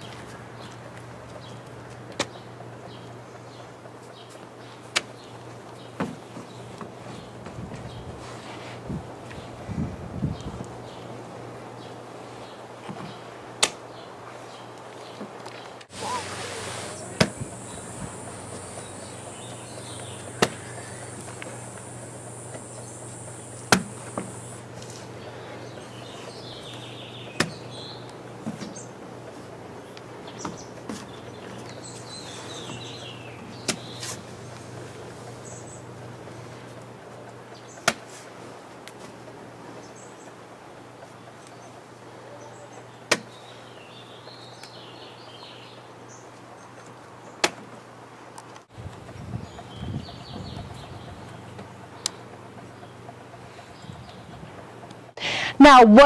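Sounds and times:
birds chirping faintly: 11.7s - 37.8s.

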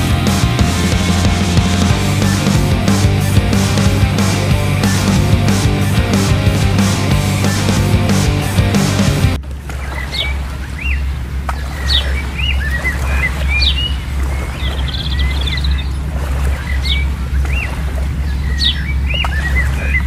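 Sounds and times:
steady low rumble: 0.0s - 9.4s.

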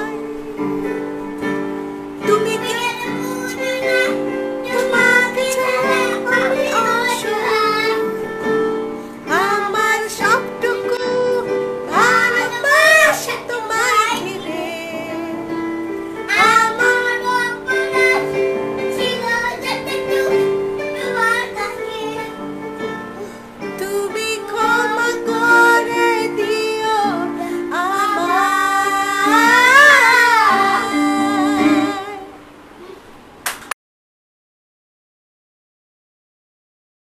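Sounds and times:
piano accompaniment: 0.0s - 33.4s
child singing: 2.2s - 8.5s, 9.3s - 15.6s, 16.3s - 22.6s, 23.8s - 32.4s.

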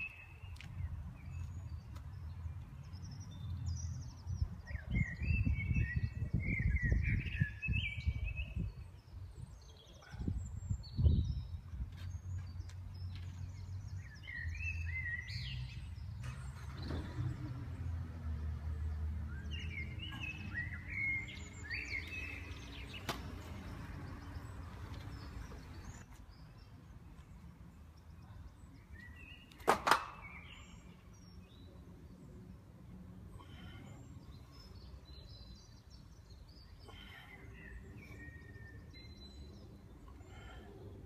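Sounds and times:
small birds chirping: 0.0s - 18.0s, 18.8s - 41.0s.

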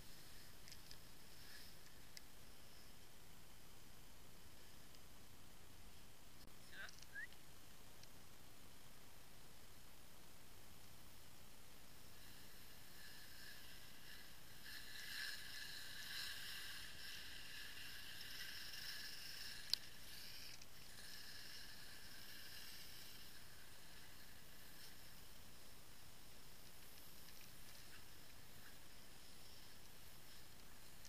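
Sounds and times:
skis sliding over snow: 0.0s - 3.0s, 11.8s - 31.0s.

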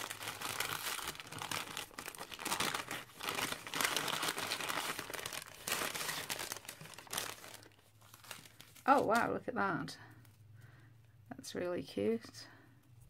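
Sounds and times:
paper bag crinkling: 0.0s - 9.4s.

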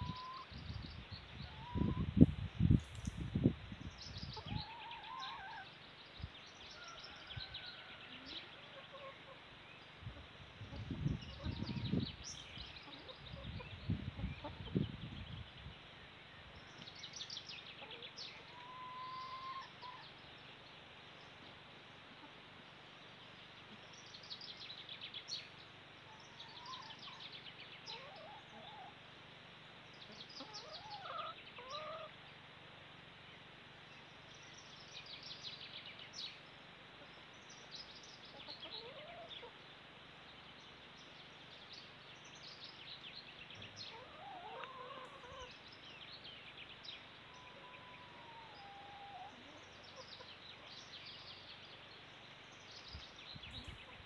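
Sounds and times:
whistled bird calls: 18.6s - 19.7s.

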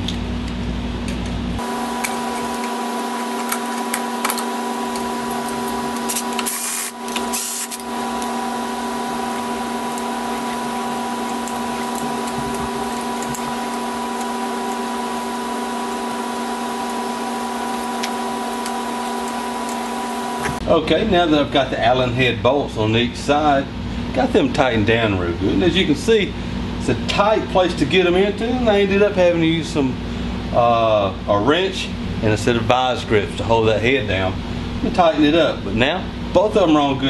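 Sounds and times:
electric motor whine: 1.6s - 20.6s.

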